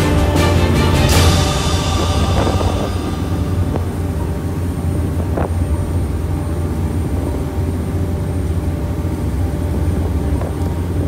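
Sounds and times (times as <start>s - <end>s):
boat engine drone: 0.0s - 11.0s.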